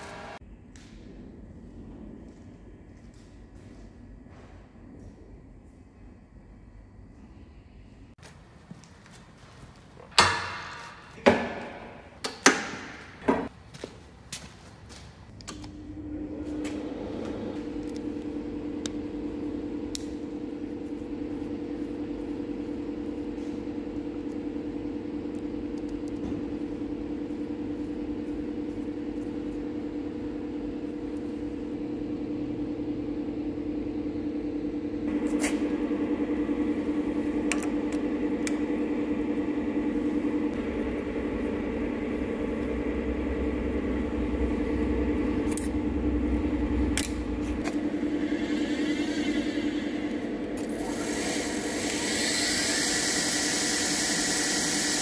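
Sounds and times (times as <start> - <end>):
boring machine drive humming: 0.0 - 0.4, 15.3 - 55.0.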